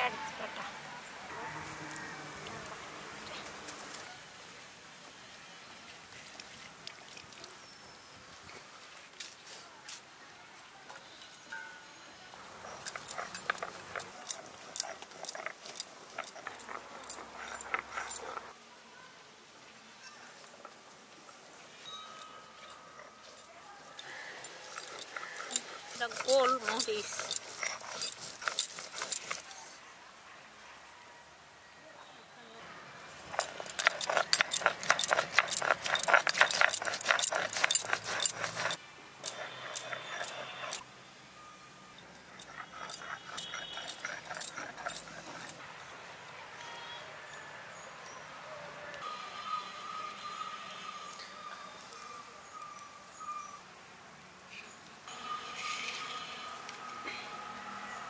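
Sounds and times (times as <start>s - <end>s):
stone grinding peppercorns: 12.5s - 18.5s, 21.8s - 29.6s, 33.2s - 40.8s, 42.0s - 45.6s
chillies crushed with stone pestle: 33.2s - 40.5s.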